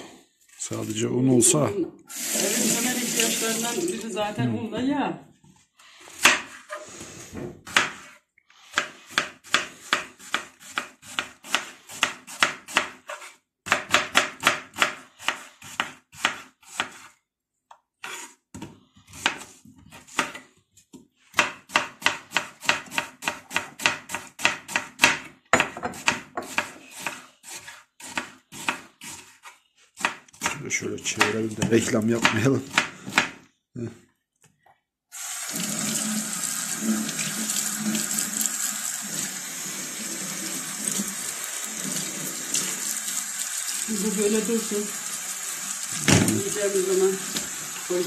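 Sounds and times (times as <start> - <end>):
knife chopping on cutting board: 6.1 - 6.7, 7.4 - 17.1, 18.0 - 20.4, 21.3 - 33.4.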